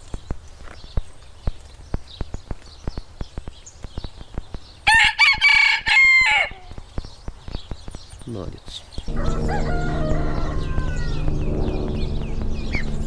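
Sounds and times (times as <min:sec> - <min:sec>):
rooster crowing: 0:04.9 - 0:06.7, 0:09.1 - 0:12.5.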